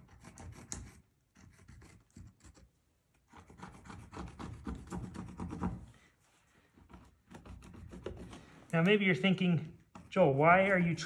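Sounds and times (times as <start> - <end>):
pencil scratching on wood: 0.0 - 5.9, 6.8 - 8.5.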